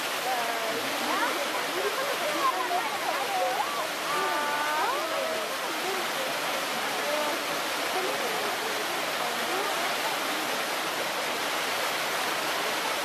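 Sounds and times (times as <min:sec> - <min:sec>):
faint voices: 0:00.0 - 0:13.0
rush of running water: 0:00.0 - 0:13.0.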